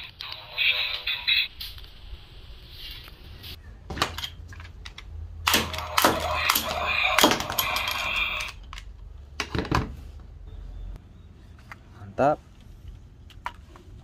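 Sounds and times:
toy gun shots clacking: 0:05.5 - 0:08.7.

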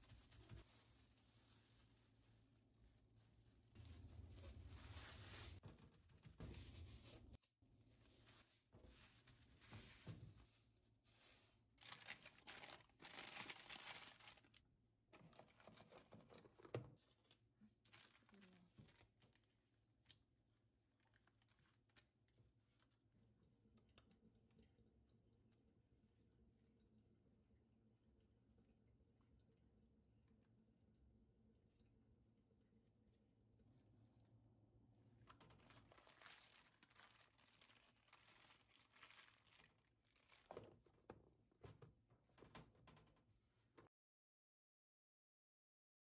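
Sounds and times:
crinkly material rustling and tearing: 0:00.0 - 0:14.6, 0:15.2 - 0:23.0, 0:35.2 - 0:40.9.

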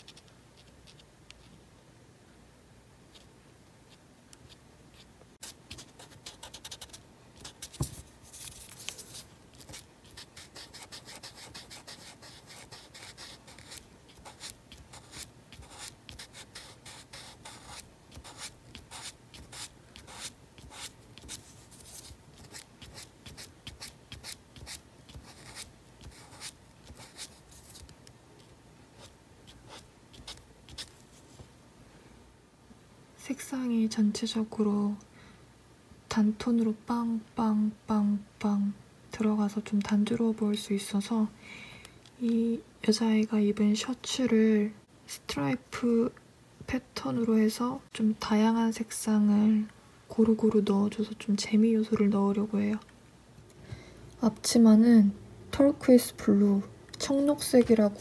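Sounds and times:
marker scratching on paper: 0:00.0 - 0:01.5, 0:03.9 - 0:27.9, 0:29.0 - 0:30.9.

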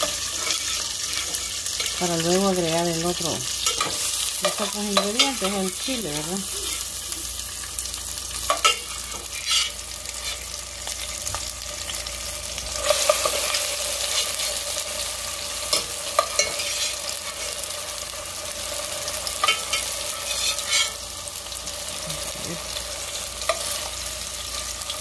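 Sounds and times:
tomatoes sizzling in oil: 0:00.0 - 0:25.0
metal utensil scraping pot: 0:08.5 - 0:10.4, 0:15.7 - 0:17.6, 0:19.4 - 0:21.0.

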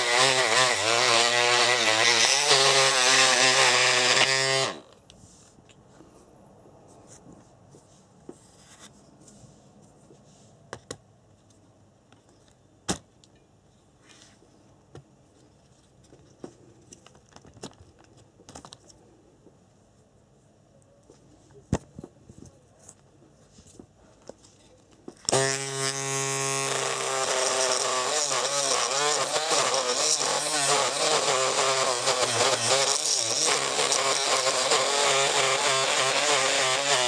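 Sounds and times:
electric motor whine: 0:00.0 - 0:05.0, 0:25.3 - 0:37.0.

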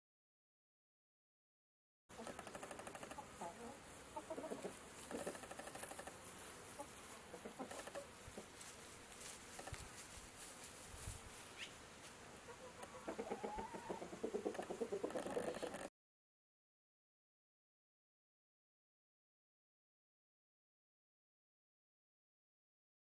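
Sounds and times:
chickens clucking: 0:02.1 - 0:08.7, 0:11.6 - 0:15.9.

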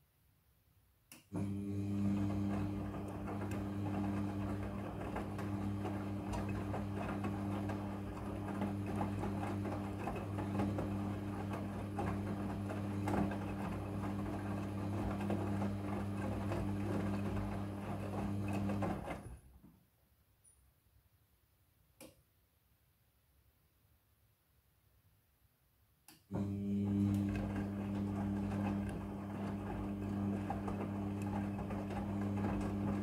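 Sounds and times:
washing machine motor humming: 0:01.3 - 0:19.5, 0:26.3 - 0:33.0
wet laundry tumbling in drum: 0:02.3 - 0:19.2, 0:26.8 - 0:33.0.

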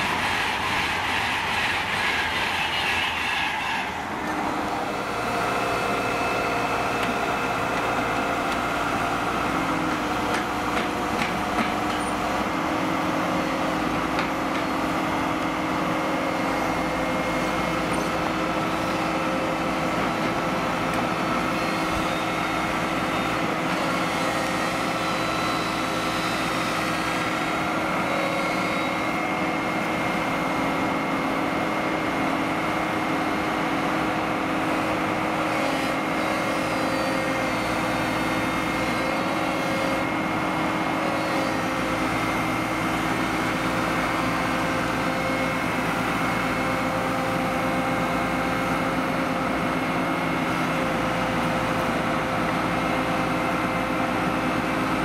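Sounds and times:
electric train rushing past: 0:00.0 - 0:06.0.

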